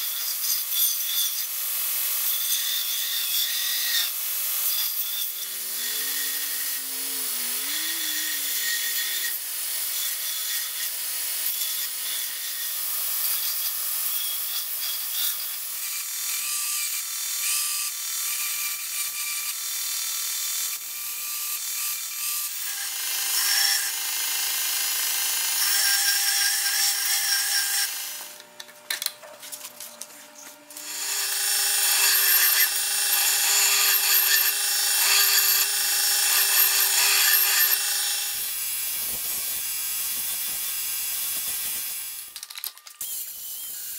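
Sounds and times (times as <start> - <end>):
belt grinder whine: 2.3 - 13.4, 29.6 - 43.9
metal grinding on belt: 3.2 - 10.6, 30.8 - 37.9.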